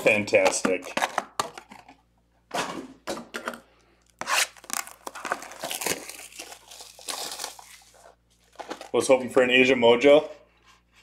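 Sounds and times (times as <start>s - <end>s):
plastic wrapping tearing and crinkling: 4.2s - 9.0s.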